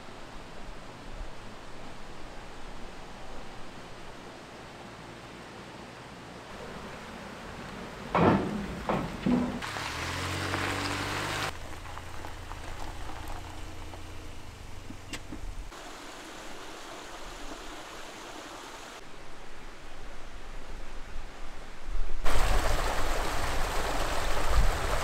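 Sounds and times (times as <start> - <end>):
mountain stream rushing: 0.0 - 14.1, 15.6 - 21.2, 22.2 - 25.0
tyres on gravel: 6.5 - 18.6.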